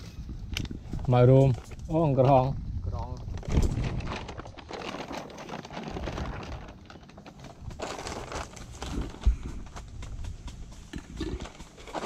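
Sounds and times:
foil crinkling: 3.2s - 12.0s.

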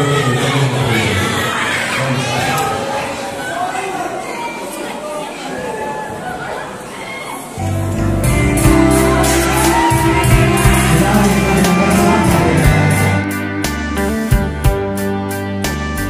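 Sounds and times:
instrumental music through pa system: 7.7s - 16.0s
drum beat: 8.6s - 13.3s.

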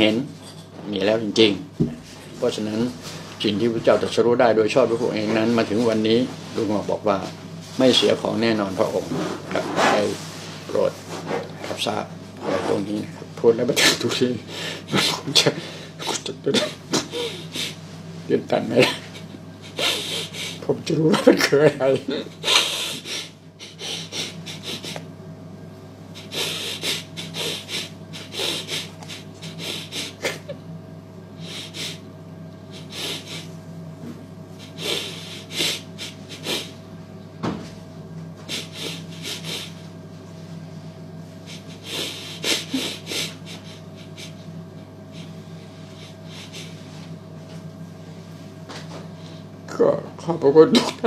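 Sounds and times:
steady low hum: 0.0s - 51.0s
short rustling and scraping: 5.1s - 13.0s.

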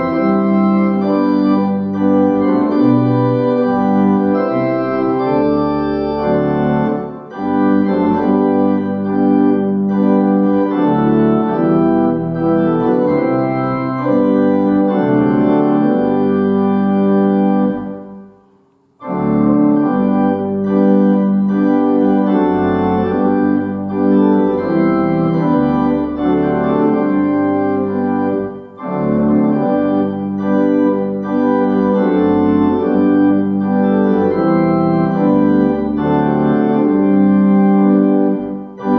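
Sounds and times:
organ playing a hymn: 0.0s - 18.4s, 19.0s - 38.9s.

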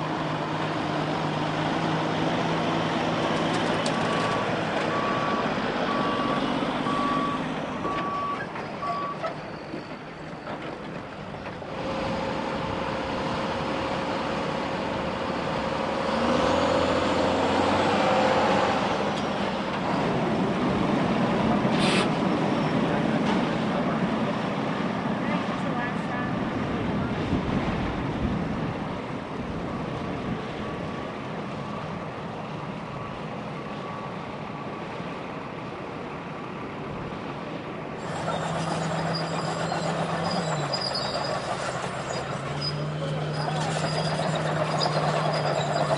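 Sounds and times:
short hiss: 21.7s - 22.1s
heavy machinery running: 38.0s - 45.9s.

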